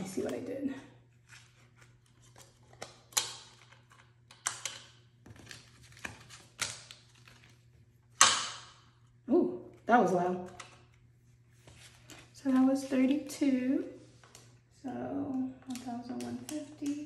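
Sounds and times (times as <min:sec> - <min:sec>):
paper money snapping: 0:01.8 - 0:07.5.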